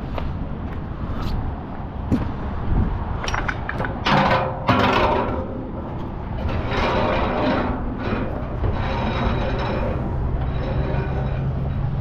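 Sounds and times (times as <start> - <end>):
rope scraping on metal: 4.7 - 12.0.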